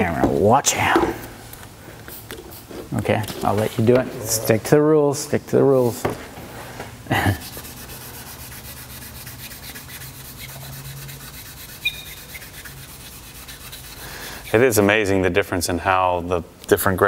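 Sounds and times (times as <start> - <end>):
sandpaper rubbing: 7.1 - 14.8.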